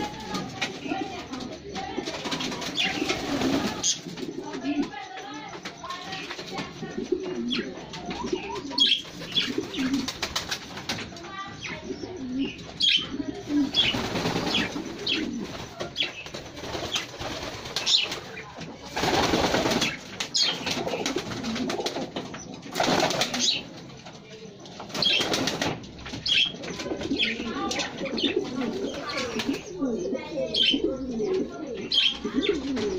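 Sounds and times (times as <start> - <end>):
wings flapping: 0.0 - 5.0, 8.1 - 11.4, 13.4 - 24.0, 24.8 - 29.6
pigeons cooing: 0.0 - 32.9.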